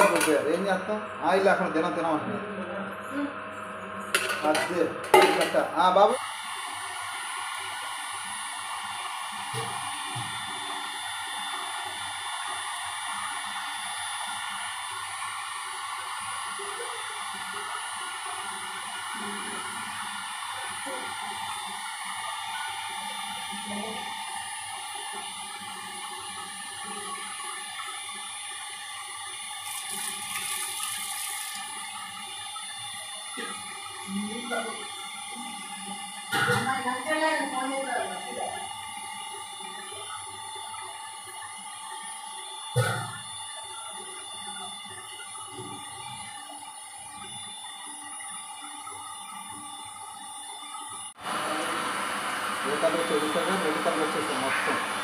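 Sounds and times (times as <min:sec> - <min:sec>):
heat gun fan blowing: 0:04.2 - 0:27.0, 0:51.2 - 0:55.0.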